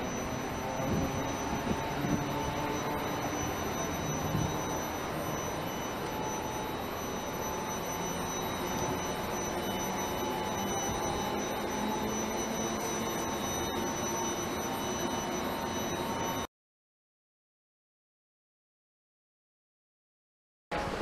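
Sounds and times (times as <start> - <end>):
streetcar electrical hum: 0.0 - 16.4, 20.7 - 21.0
faint whining tones: 0.0 - 16.5.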